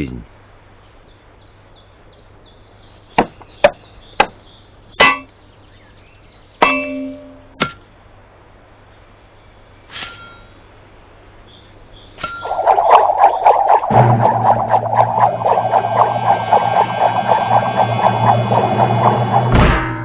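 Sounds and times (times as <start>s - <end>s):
ringing metallic clang: 5.0s - 5.3s, 6.6s - 7.5s.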